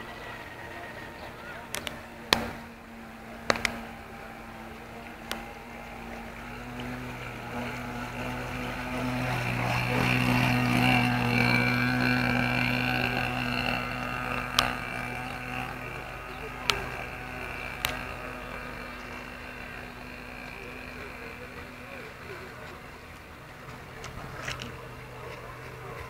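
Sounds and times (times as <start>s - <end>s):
small model boat engine: 0.0s - 26.0s
sharp clicks: 1.7s - 2.7s, 3.4s - 3.9s, 14.4s - 15.1s.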